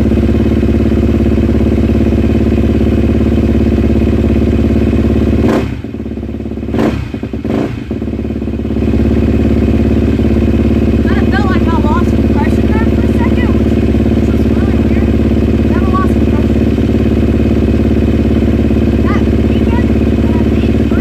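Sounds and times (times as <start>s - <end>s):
dirt bike engine running: 0.0s - 21.0s.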